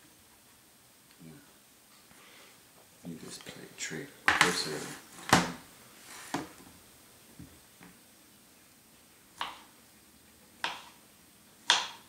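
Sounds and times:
knife tapping cutting board: 11.7s - 12.0s.

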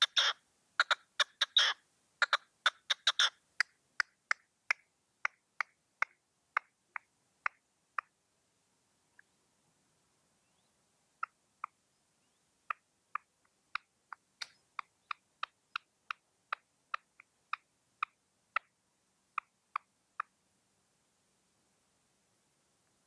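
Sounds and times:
partridge calling: 0.0s - 3.7s, 10.5s - 18.7s.

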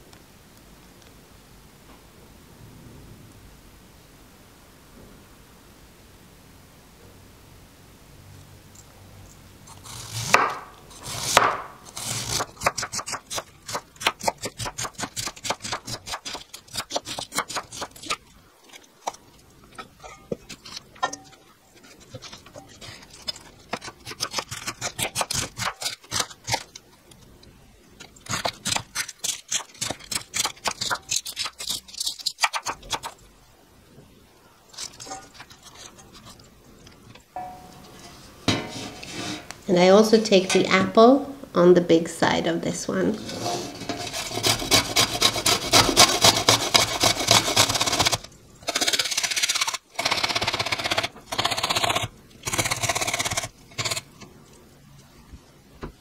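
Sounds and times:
knife slicing cabbage on board: 9.8s - 18.2s.

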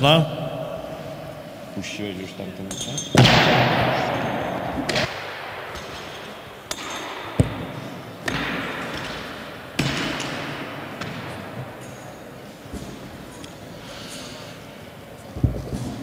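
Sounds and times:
barbell plates thumping with echo: 2.7s - 13.2s.

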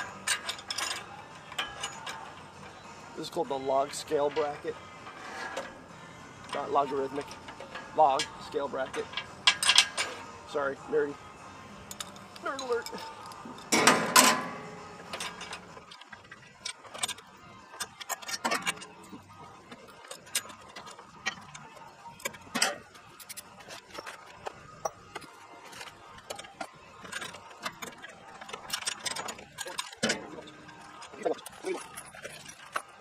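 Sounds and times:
metal clink: 0.0s - 5.8s, 6.5s - 10.3s, 11.8s - 19.2s.

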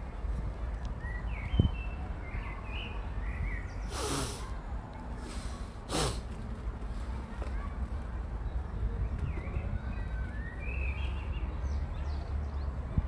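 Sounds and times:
wind rumble on microphone: 0.0s - 2.2s, 8.7s - 10.3s, 12.6s - 13.0s
bird chirps: 9.2s - 12.8s.

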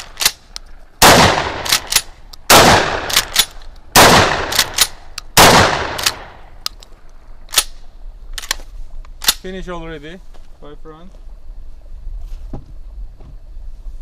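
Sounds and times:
shotgun shots: 1.0s - 6.4s
shotgun pump racking clacks: 3.1s - 3.7s.

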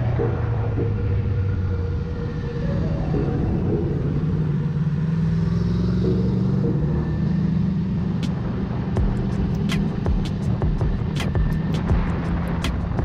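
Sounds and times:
motorcycle engine running: 3.2s - 13.0s.

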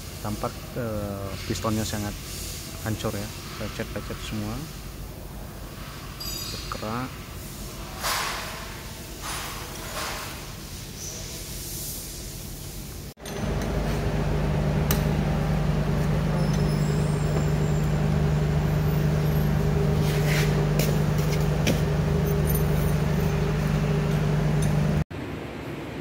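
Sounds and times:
scooter engine running: 13.2s - 25.1s.

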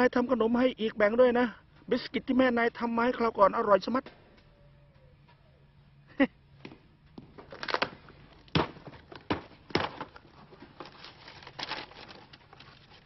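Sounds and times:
paper rustling: 7.4s - 8.1s, 8.9s - 13.0s
cardboard box tape ripping: 7.4s - 9.0s, 9.7s - 13.0s.

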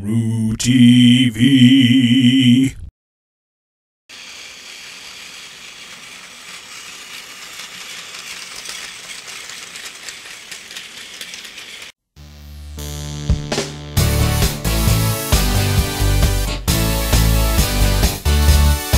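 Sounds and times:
toy train rattling on plastic track: 4.1s - 12.0s.

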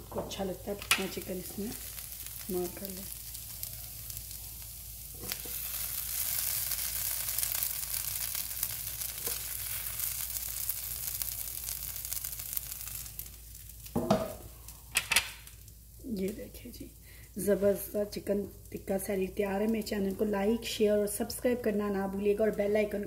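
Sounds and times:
meat sizzling in a frying pan: 0.0s - 23.0s
knock: 14.0s - 14.4s.

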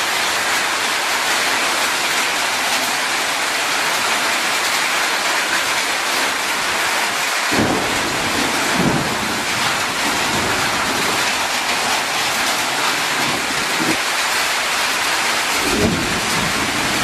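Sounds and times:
heavy rain: 0.0s - 17.0s.

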